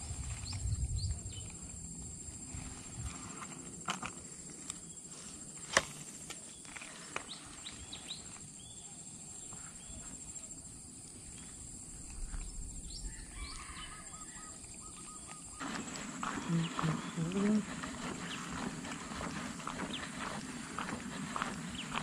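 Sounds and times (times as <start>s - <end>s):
birds chirping and calling: 12.3s - 22.0s.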